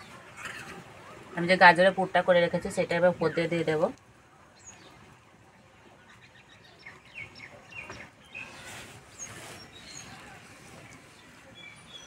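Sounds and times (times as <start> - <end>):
faint bird chirping: 4.3 - 12.0.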